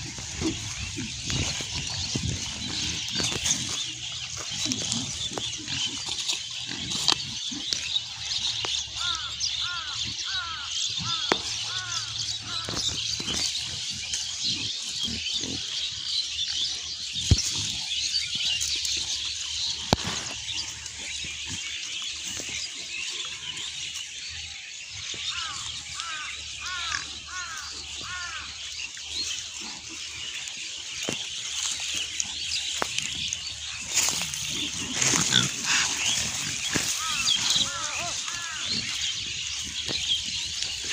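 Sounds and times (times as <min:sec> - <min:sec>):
pigs grunting: 0:00.0 - 0:23.8, 0:25.4 - 0:40.9.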